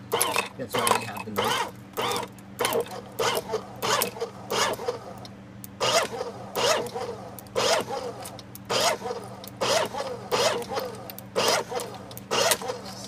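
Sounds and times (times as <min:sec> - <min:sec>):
shredder motor humming: 0:00.0 - 0:05.2, 0:05.8 - 0:13.0
shredder grinding plastic: 0:00.1 - 0:04.9, 0:05.8 - 0:13.0.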